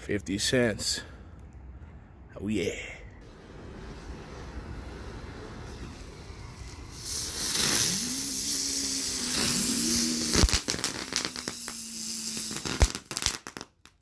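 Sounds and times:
fireworks hissing spray of sparks: 3.4s - 13.8s
fireworks crackling pops: 5.2s - 14.0s.

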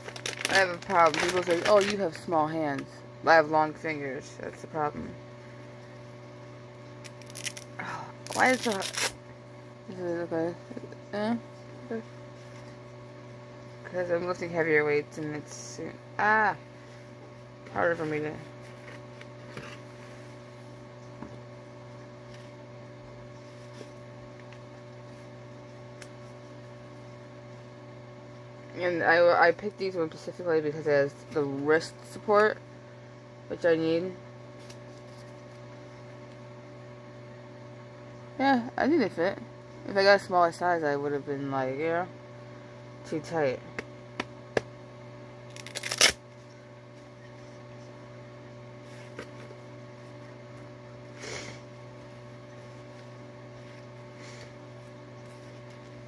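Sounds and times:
low electrical hum: 0.0s - 56.0s
hook-and-loop strap ripping open: 7.0s - 9.2s, 45.5s - 46.2s.

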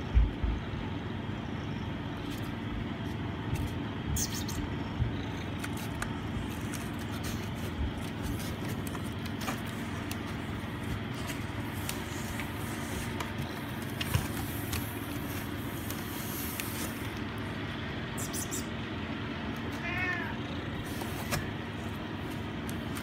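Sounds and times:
faint hum: 0.0s - 23.0s
steady low rumble: 0.0s - 23.0s.

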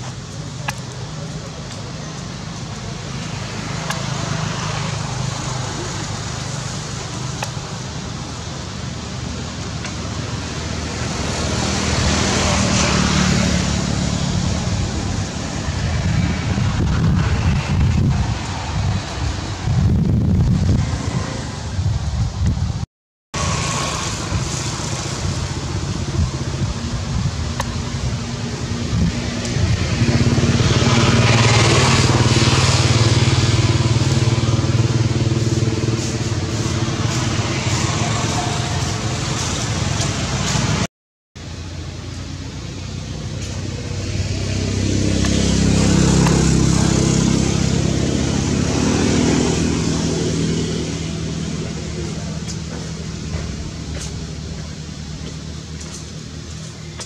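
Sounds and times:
outdoor background noise: 0.0s - 57.0s
vehicle engine running: 23.4s - 57.0s.

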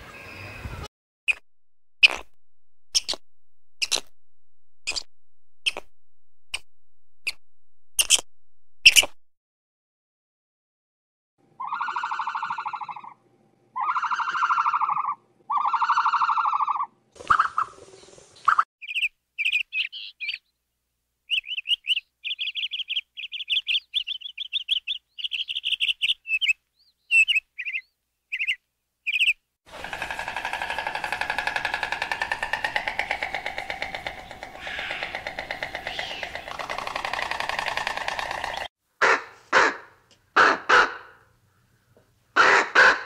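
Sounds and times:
high bird chirps: 2.0s - 3.2s, 4.8s - 5.9s, 6.5s - 9.2s, 32.3s - 38.7s
rustle: 17.1s - 18.6s
drawn-out animal calls: 29.7s - 38.7s.

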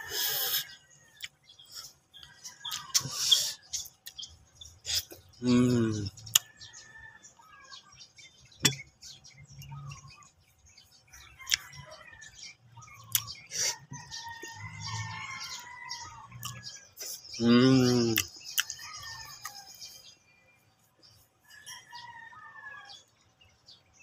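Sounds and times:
small birds chirping: 0.0s - 24.0s
mouth clicks and smacks: 2.7s - 4.2s, 13.1s - 13.8s, 17.9s - 18.8s
man humming low: 5.4s - 6.2s, 17.4s - 18.3s.

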